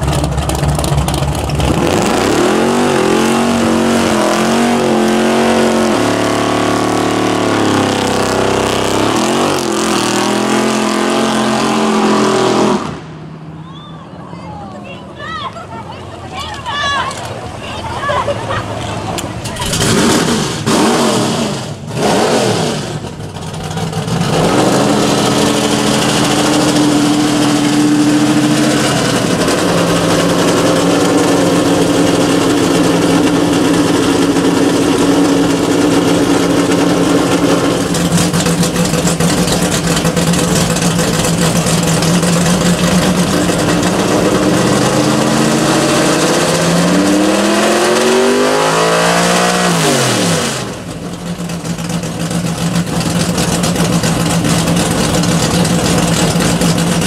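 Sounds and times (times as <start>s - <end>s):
car engine at high revs: 0.0s - 13.3s, 19.1s - 57.0s.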